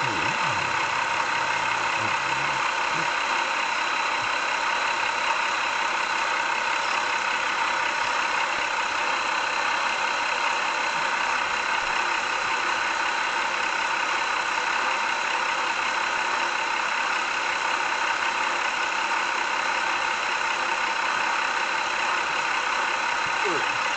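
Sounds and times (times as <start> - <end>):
train running: 0.0 - 13.4.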